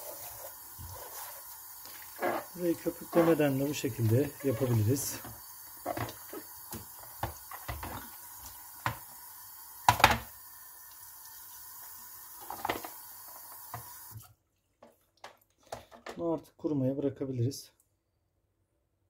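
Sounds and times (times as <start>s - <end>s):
tap water running into sink: 0.0s - 14.3s
plastic part knocking in sink: 5.8s - 8.1s, 8.8s - 9.0s, 9.9s - 10.3s.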